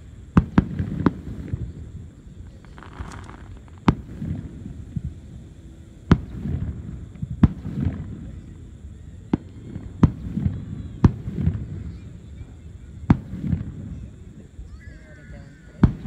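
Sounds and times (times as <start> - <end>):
low rolling booms and echoes: 0.0 - 8.7
fireworks shells bursting: 2.4 - 5.1.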